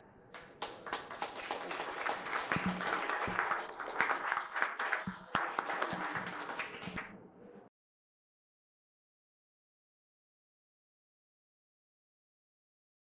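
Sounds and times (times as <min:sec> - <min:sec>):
audience applauding: 0:00.3 - 0:07.2.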